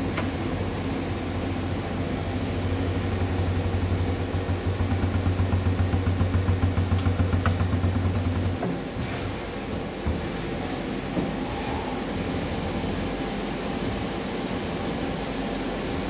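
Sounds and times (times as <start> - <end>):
lathe running: 0.0 - 10.0.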